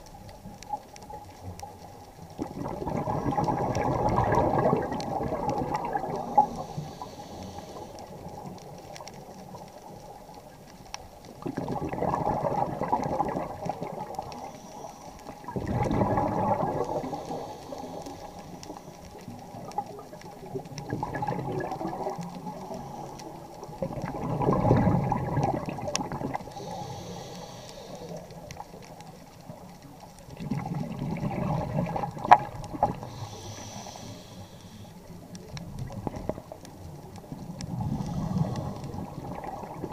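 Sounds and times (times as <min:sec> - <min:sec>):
exhaled bubbles rushing underwater: 0:00.2 - 0:39.9
faint regulator hiss: 0:04.8 - 0:11.4, 0:13.4 - 0:24.2, 0:24.8 - 0:30.7, 0:31.5 - 0:39.9.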